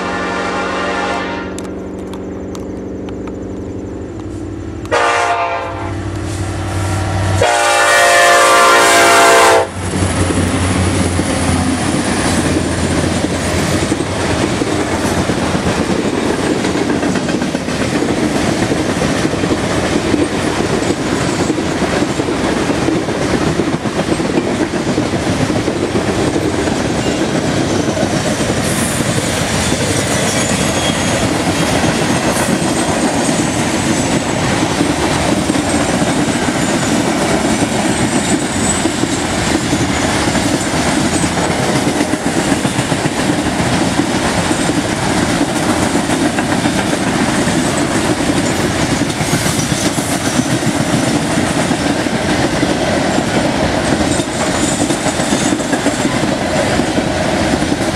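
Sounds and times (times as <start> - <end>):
locomotive air horn: 0.0 - 1.8, 4.4 - 9.8
train rumbling past: 0.0 - 57.9
wheels clacking over rail joints: 9.7 - 57.9.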